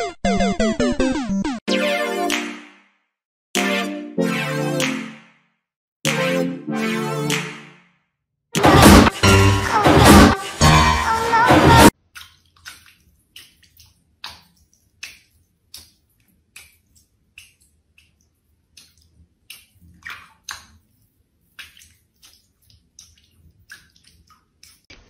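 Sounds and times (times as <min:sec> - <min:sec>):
small water splashes: 0:12.0 - 0:25.0.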